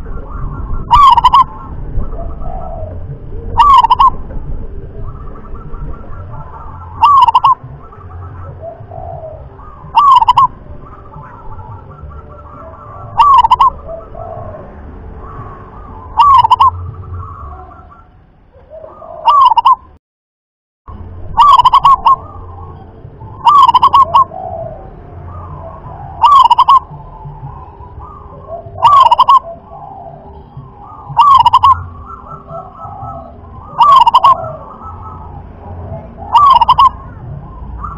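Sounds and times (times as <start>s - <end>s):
dove cooing: 0.0s - 20.0s, 21.3s - 37.9s.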